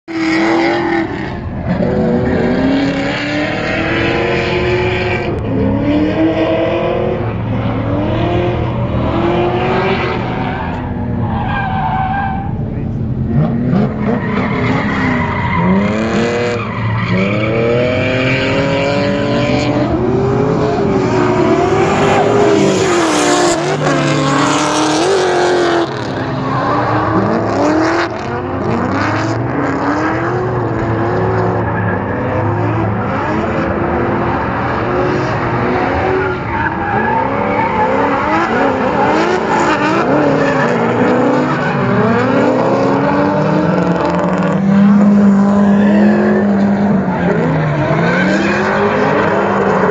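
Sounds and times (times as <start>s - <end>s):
car engines revving: 0.0s - 49.9s
tyre squeal and skidding: 9.6s - 12.7s, 13.3s - 19.9s, 20.6s - 28.4s, 30.7s - 33.6s, 34.3s - 49.9s.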